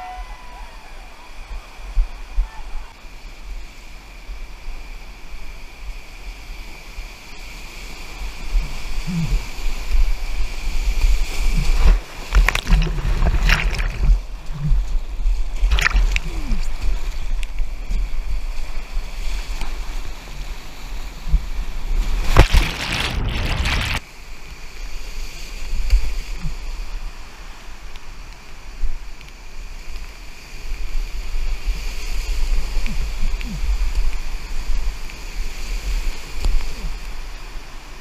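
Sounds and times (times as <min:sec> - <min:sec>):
waves splashing over microphone: 0:00.0 - 0:38.0.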